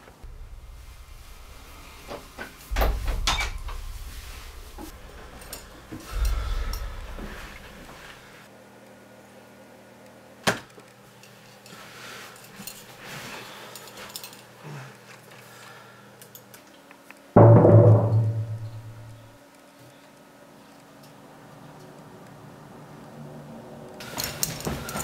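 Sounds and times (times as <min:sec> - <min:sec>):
loud low boom sound effect: 0:00.2 - 0:07.9, 0:17.4 - 0:19.2.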